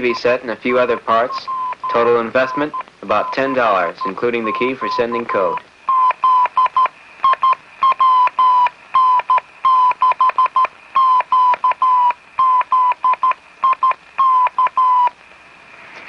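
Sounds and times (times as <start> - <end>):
morse code beeping tone: 1.2 - 15.1.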